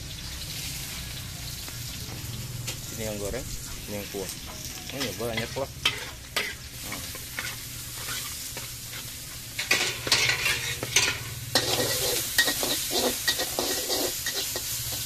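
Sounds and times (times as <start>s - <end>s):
noodles sizzling in a wok: 0.0s - 15.0s
metal ladle scraping a pan: 3.5s - 15.0s.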